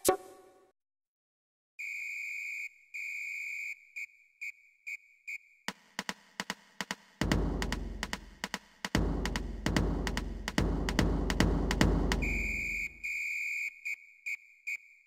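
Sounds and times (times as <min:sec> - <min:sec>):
high electronic beeps: 0:12.2 - 0:13.4.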